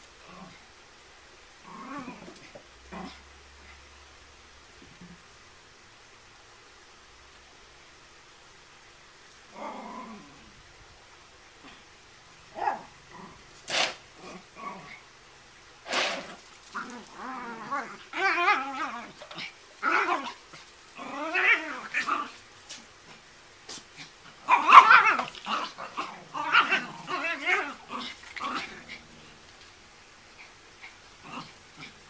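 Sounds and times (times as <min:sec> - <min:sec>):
small dogs growling and yapping: 0:00.0 - 0:00.7, 0:01.6 - 0:03.8, 0:09.3 - 0:10.7, 0:11.6 - 0:15.2, 0:15.8 - 0:32.0.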